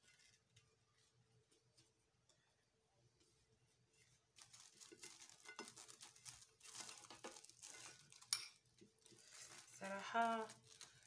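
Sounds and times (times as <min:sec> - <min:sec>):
pastry sheets crinkling: 0:03.9 - 0:11.0.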